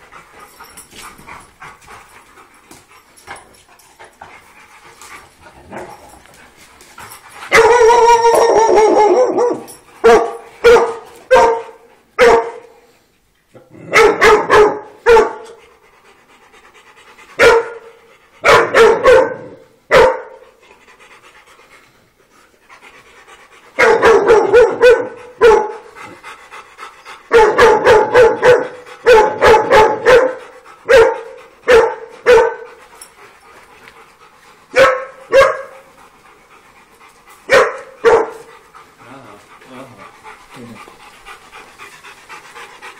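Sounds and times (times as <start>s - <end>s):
dog barking: 7.5s - 12.7s, 13.9s - 15.5s, 17.4s - 20.4s, 23.8s - 25.8s, 27.3s - 32.8s, 34.7s - 35.8s, 37.5s - 38.4s.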